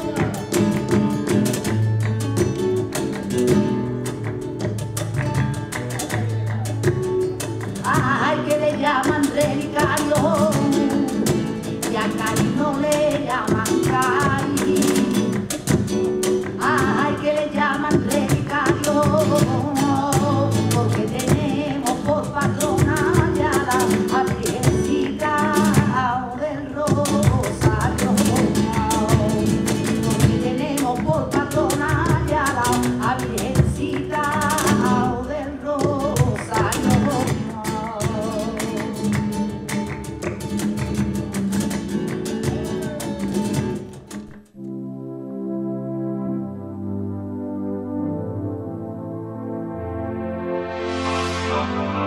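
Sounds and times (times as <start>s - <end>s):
woman singing: 0.0s - 1.2s, 7.8s - 15.6s, 16.4s - 40.0s
rhythmic hand-clapping: 0.0s - 26.1s, 26.9s - 35.2s, 35.8s - 44.5s
acoustic guitar: 0.0s - 52.0s.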